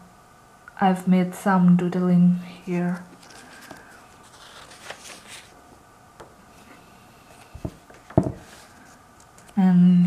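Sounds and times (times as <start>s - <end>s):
notebook pages rustling and turning: 2.8s - 5.6s.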